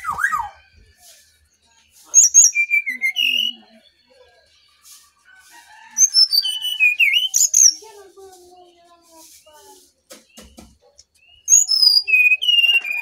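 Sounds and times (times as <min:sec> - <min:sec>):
bird singing whistled notes: 0:00.0 - 0:04.8, 0:06.0 - 0:07.8, 0:10.2 - 0:13.0.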